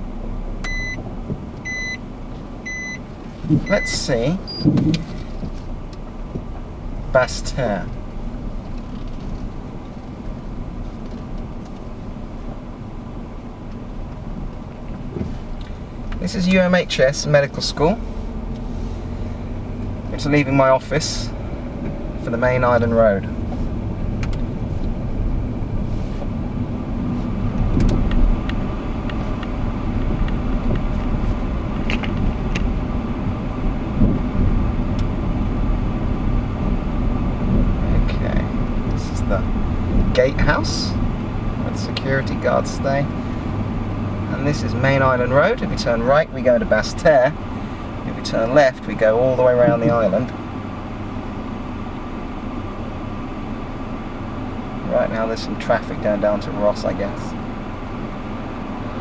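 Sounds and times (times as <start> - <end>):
car engine and road rumble: 0.0 - 59.0.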